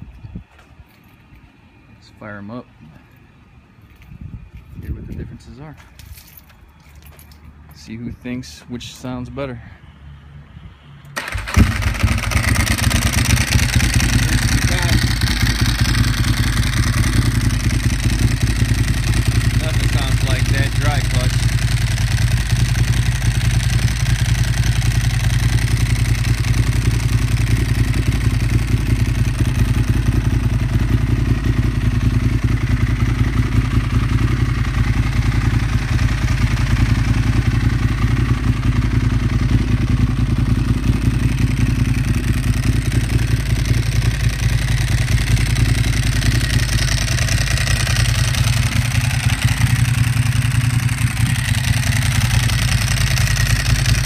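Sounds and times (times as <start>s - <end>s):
motorcycle engine idling: 11.2s - 54.0s.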